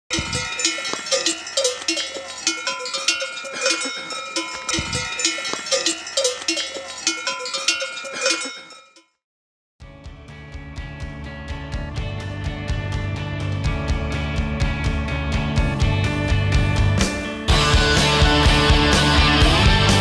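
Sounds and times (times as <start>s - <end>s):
cowbells clanging: 0.1s - 9.0s.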